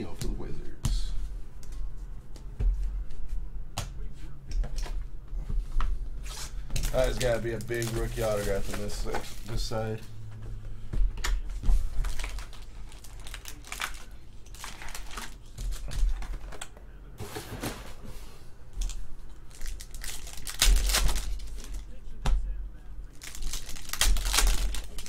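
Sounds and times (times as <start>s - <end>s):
plastic wrapper crinkling: 6.8s - 9.7s, 12.0s - 16.2s, 18.8s - 21.8s, 23.1s - 25.0s.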